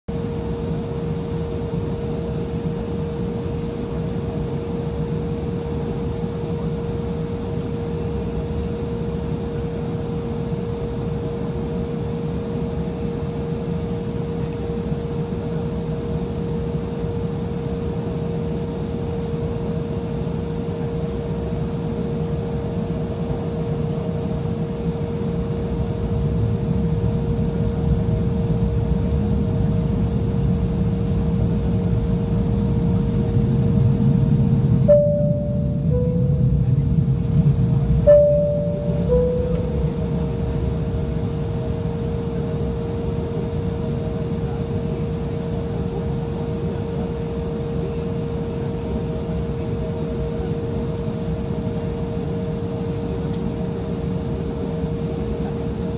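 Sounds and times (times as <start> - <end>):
jet engines whining: 0.2 - 55.8
low engine rumble: 20.8 - 47.2.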